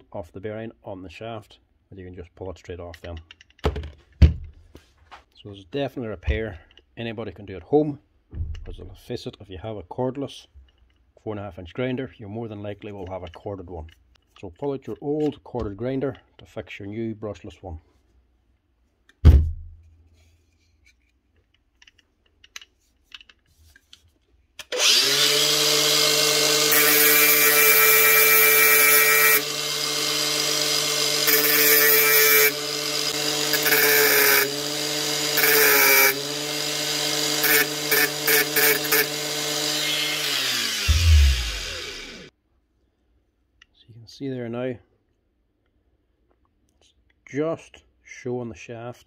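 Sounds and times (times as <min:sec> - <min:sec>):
knock: 0:19.2 - 0:19.8
angle grinder cutting metal: 0:24.6 - 0:42.3.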